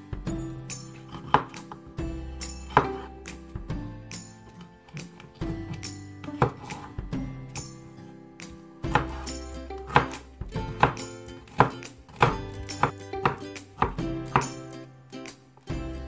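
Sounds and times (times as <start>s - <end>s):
background music: 0.0s - 16.0s
knife chopping on wooden board: 1.0s - 1.9s, 2.5s - 3.1s, 4.9s - 6.9s, 8.8s - 14.6s.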